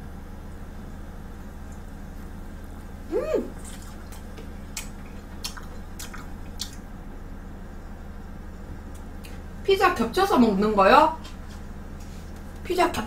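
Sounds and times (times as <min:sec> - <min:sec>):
woman humming mm: 0:03.1 - 0:03.6
chewing with wet mouth clicks: 0:03.6 - 0:06.9.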